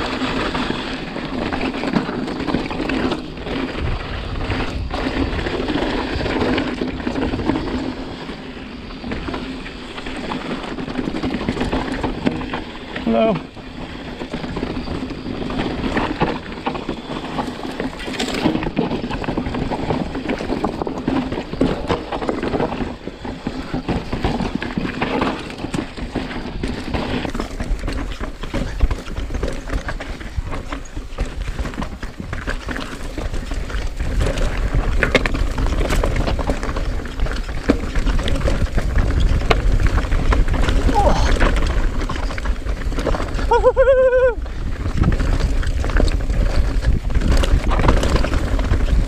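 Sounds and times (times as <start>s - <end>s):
bike chain and frame rattling: 0.0s - 49.0s
wind rumble on microphone: 0.0s - 49.0s
tyres crunching over rock: 10.9s - 49.0s.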